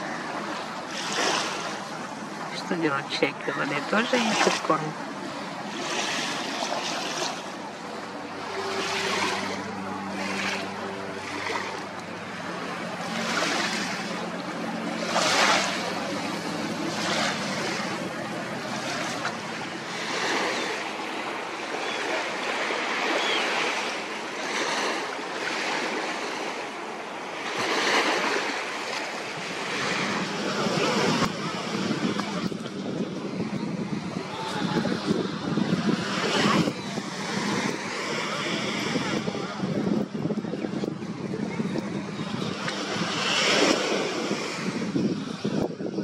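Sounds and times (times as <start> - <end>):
waves washing onto sandy beach: 0.0 - 46.0.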